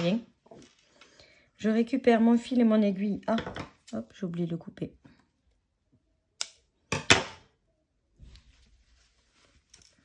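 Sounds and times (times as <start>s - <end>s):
fabric rustling: 8.1s - 10.0s.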